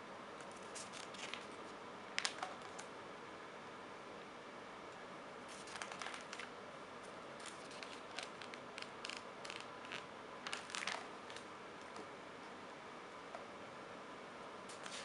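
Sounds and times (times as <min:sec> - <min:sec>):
magazine paper rustling: 0:00.4 - 0:01.6, 0:05.5 - 0:06.5, 0:07.4 - 0:11.5, 0:14.7 - 0:15.0.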